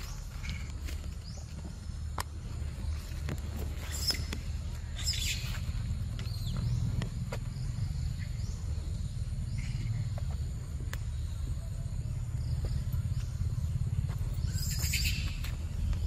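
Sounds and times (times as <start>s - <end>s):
faint insect drone: 0.0s - 16.0s.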